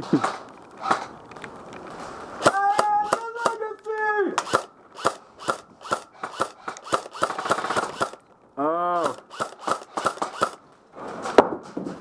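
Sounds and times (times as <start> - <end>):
airsoft rifle shots: 2.4 - 3.7, 4.4 - 8.2, 9.0 - 10.6
person shouting: 2.4 - 4.4.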